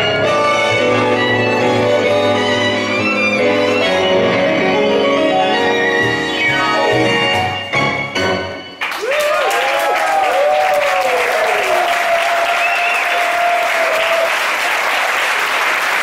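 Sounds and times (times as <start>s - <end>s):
piano and violin tango: 0.0s - 8.8s
audience applauding: 8.8s - 16.0s
audience shouting approval: 9.0s - 15.0s.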